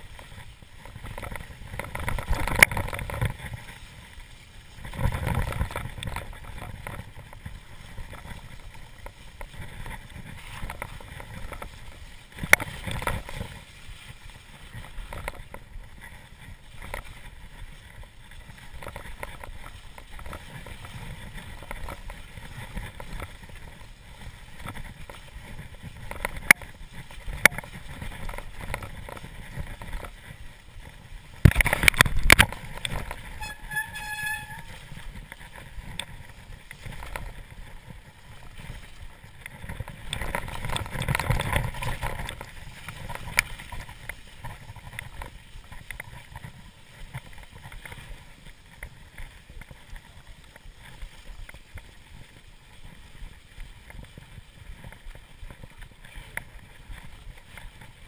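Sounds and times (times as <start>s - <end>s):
bike tyre and frame rattle: 0.0s - 58.0s
short high squeal: 33.3s - 34.8s.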